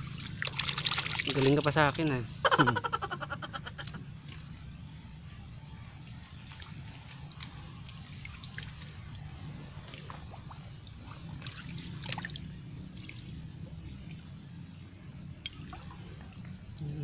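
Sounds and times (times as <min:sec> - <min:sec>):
water trickling and dripping: 0:00.0 - 0:02.4, 0:06.0 - 0:17.0.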